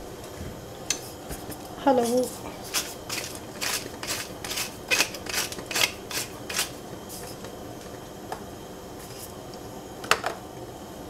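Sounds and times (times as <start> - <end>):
chopsticks beating eggs in bowl: 1.4 - 7.5.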